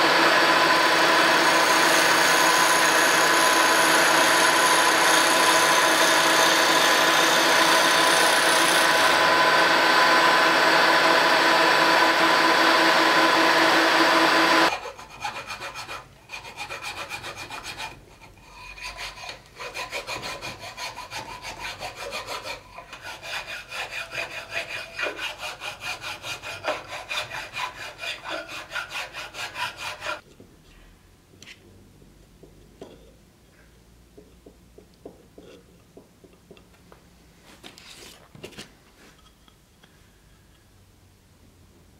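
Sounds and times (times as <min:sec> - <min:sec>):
milling machine whine: 0:00.0 - 0:14.7
hand file rubbing wood: 0:11.8 - 0:30.2.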